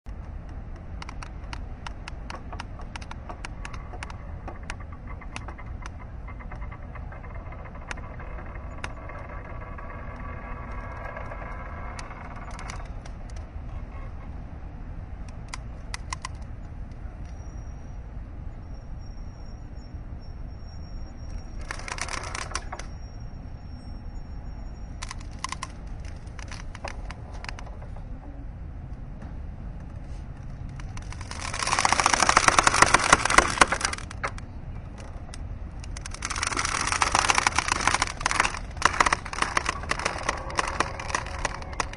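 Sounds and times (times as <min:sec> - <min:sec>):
mooring ropes creaking: 0:01.0 - 0:14.4, 0:21.3 - 0:22.9, 0:25.0 - 0:28.4, 0:29.8 - 0:41.9.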